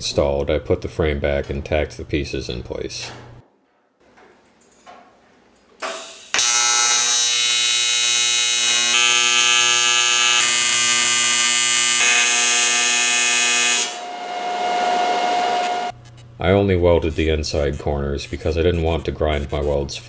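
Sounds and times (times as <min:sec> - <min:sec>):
welding arc buzzing: 0:05.8 - 0:16.2.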